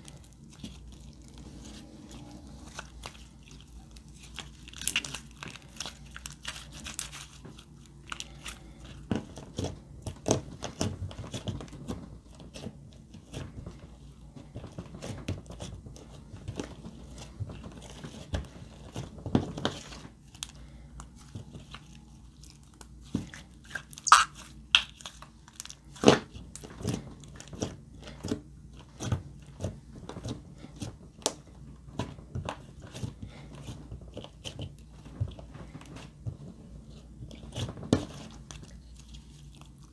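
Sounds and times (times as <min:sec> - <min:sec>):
slime squelching: 0:00.0 - 0:11.7, 0:19.7 - 0:31.3.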